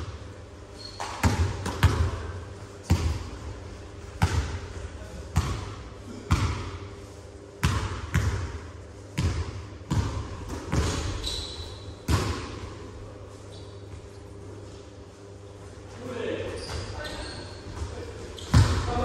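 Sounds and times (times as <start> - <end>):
basketball bouncing on gym floor: 0.8 - 3.4, 4.1 - 6.9, 7.6 - 12.8, 16.6 - 19.0.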